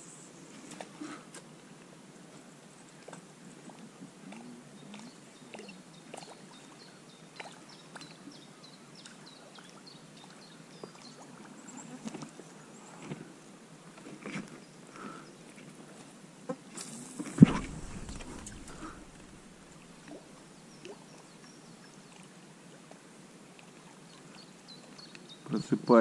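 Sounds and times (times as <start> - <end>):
river water gurgling: 16.9 - 24.6.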